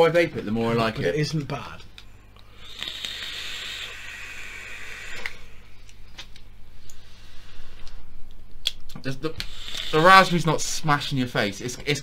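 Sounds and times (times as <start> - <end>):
breathy exhale hiss: 2.4 - 5.8, 7.0 - 7.9, 9.4 - 10.4
vape airy hiss: 2.5 - 5.7, 9.4 - 10.4.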